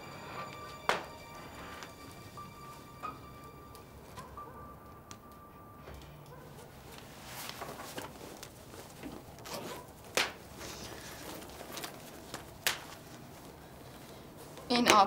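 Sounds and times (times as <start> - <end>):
fabric rustling: 6.8 - 14.6.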